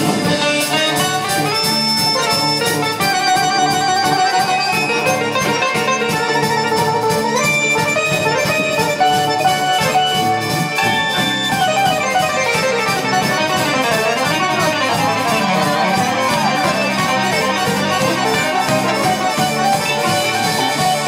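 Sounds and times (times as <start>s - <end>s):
piano accordions playing a tune: 0.0s - 21.0s
steady beat: 0.0s - 21.0s.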